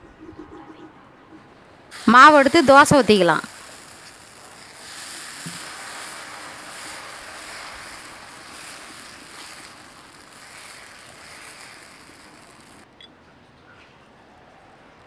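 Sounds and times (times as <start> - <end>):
batter sizzling on hot griddle: 2.0 - 12.9.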